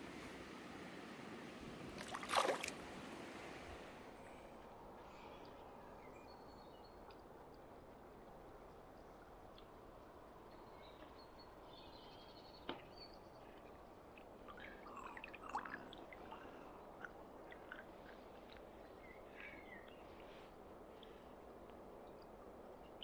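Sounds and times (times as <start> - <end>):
river flowing: 0.0 - 6.0
water splashing and dripping: 1.9 - 2.9.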